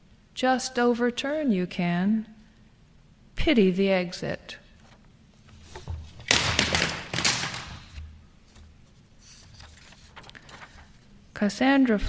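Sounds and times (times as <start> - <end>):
faint room noise: 0.0 - 12.0
rustling with taps and knocks: 4.8 - 11.0.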